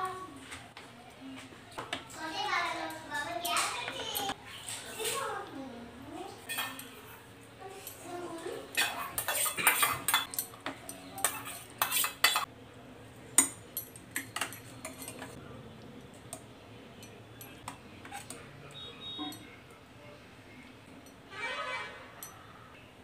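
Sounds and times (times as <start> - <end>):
ladle scraping a metal pot: 8.8 - 10.3, 11.2 - 12.5.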